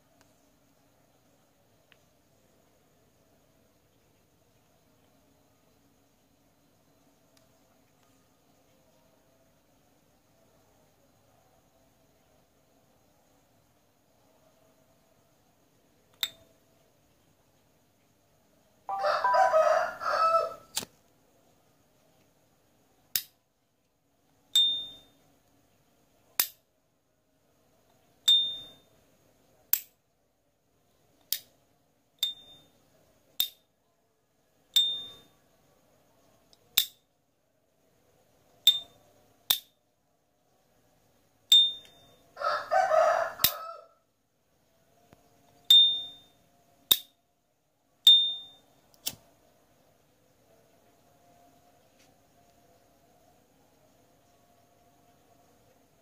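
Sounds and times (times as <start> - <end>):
high metallic ping: 28.3 - 28.8, 34.8 - 35.2, 41.5 - 42.1, 45.7 - 47.1, 48.1 - 48.6.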